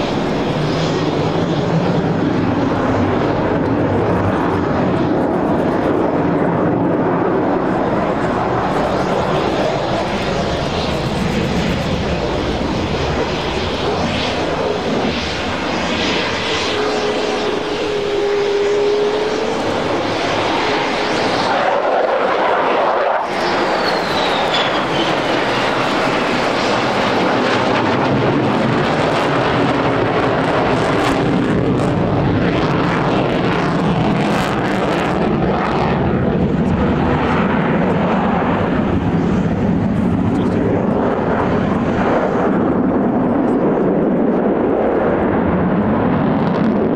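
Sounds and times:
jet roar: 0.0 - 46.9
high whine sliding down in pitch: 13.8 - 27.8.

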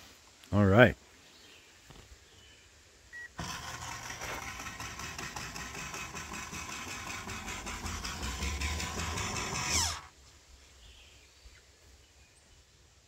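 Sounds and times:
motor whirring: 3.2 - 10.1.

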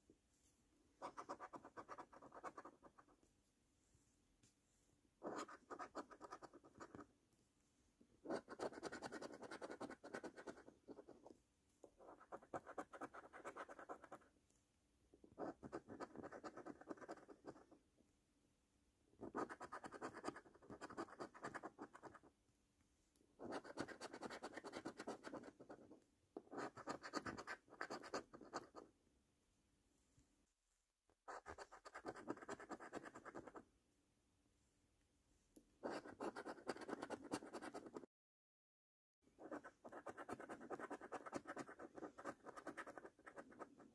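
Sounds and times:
coin scraping scratch card: 39.4 - 43.8.

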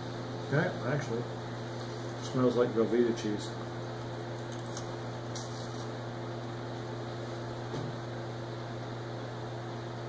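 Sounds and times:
low electrical hum with hiss: 0.0 - 10.0
crackers being chewed: 4.3 - 6.0.

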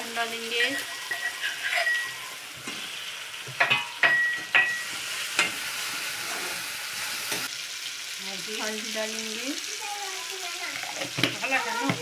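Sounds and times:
paste sizzling in oil: 0.0 - 12.0.

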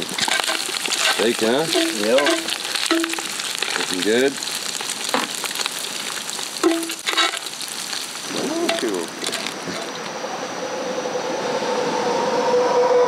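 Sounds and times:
steak sizzling in a pot: 0.0 - 10.1.

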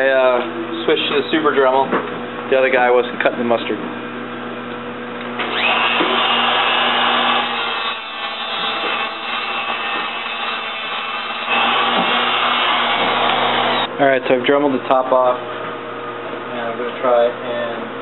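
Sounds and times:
rotary tool grinding metal: 5.4 - 13.9.

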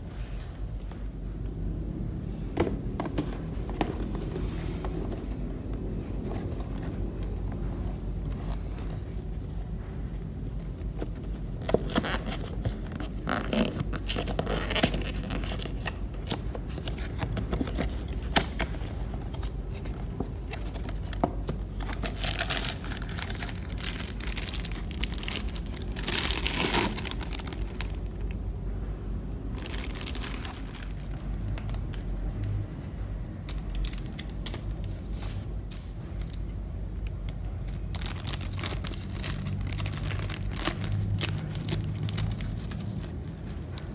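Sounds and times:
plastic bag crinkling: 10.8 - 28.4, 29.4 - 32.2, 37.7 - 43.9.

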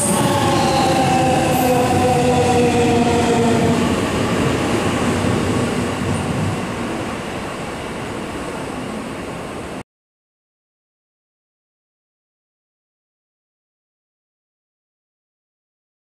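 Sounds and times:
train rumbling: 0.0 - 9.8.

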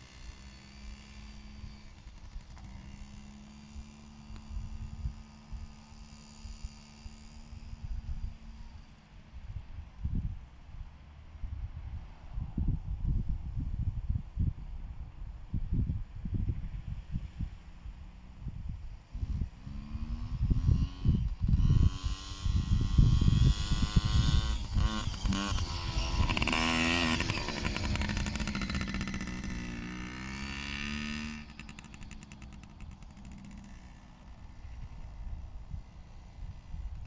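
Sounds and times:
motocross bike engine revving: 0.0 - 8.6, 19.1 - 37.0.

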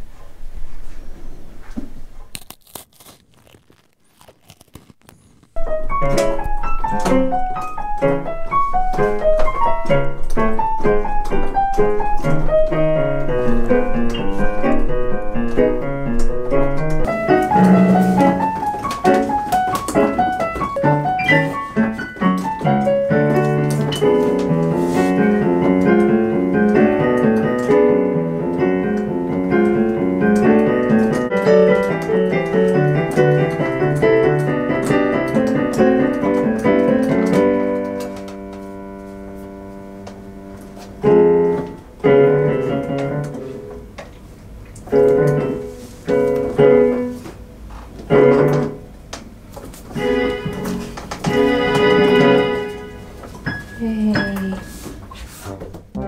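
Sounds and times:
digital piano playing: 5.6 - 44.0, 44.8 - 47.2, 48.1 - 49.0, 49.9 - 54.9.

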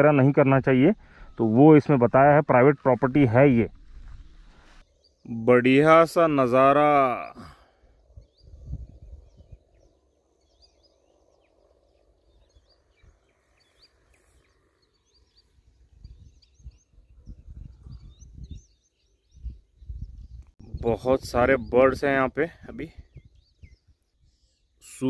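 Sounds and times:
small birds chirping: 0.1 - 25.0
low rumbling bursts: 0.9 - 4.8.

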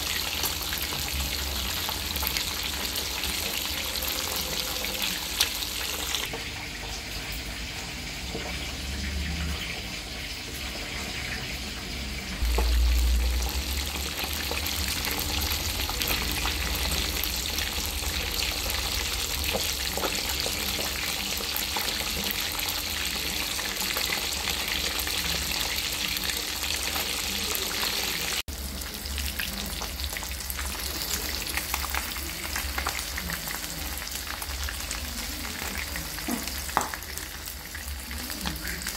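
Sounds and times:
fish sizzling in hot oil: 0.0 - 38.9
low rumble: 12.4 - 19.4.

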